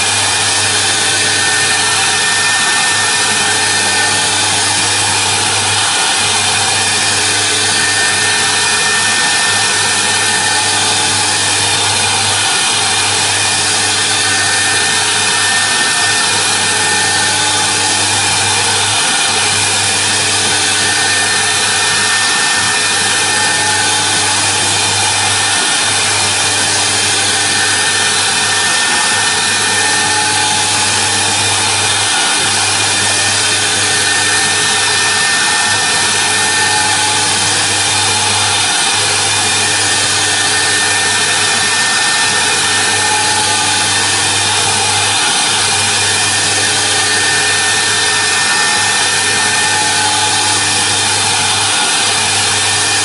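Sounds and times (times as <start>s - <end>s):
router spindle high whine: 0.0s - 53.0s.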